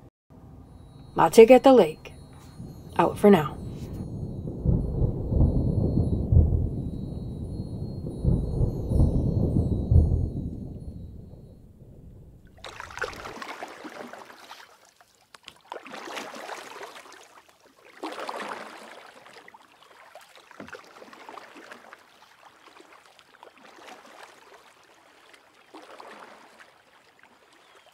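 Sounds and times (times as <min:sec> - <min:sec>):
water lapping and splashing: 0:12.4 - 0:27.9.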